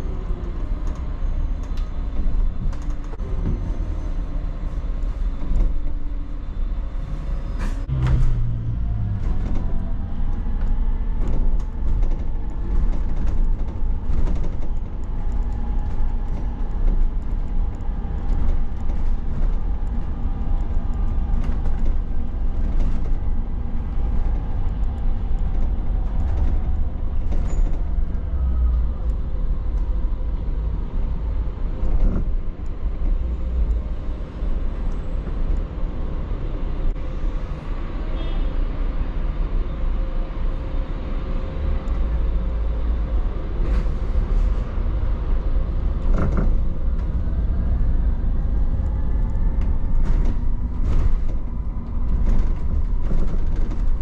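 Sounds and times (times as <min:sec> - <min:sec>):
bus road rumble: 0:00.0 - 0:54.0
bodywork rattles and clicks: 0:09.0 - 0:34.2, 0:45.6 - 0:54.0.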